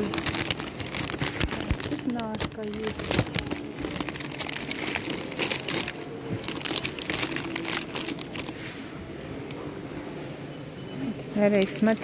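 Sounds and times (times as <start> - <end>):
plastic sleeves crinkling: 0.0 - 9.1.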